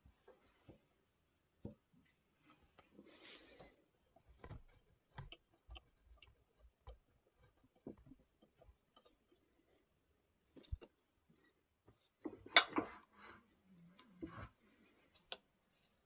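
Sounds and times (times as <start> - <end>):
wood and metal knocks and clicks: 4.4 - 9.2.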